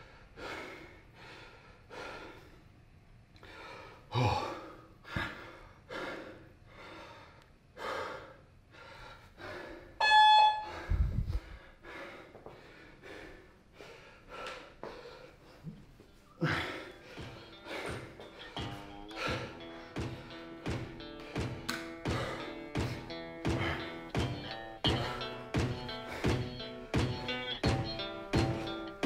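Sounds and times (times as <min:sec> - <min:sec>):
man breathing hard: 0:00.0 - 0:02.8, 0:03.4 - 0:10.0, 0:10.6 - 0:29.0
short electronic beep: 0:10.0 - 0:10.8.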